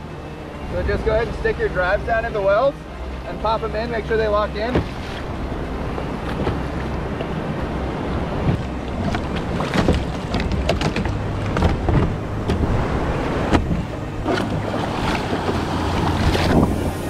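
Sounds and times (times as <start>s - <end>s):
whitewater rushing around kayak: 0.0s - 17.0s
sharp knocks and splashes: 4.6s - 7.4s, 8.1s - 17.0s
wind buffeting microphone: 4.6s - 17.0s.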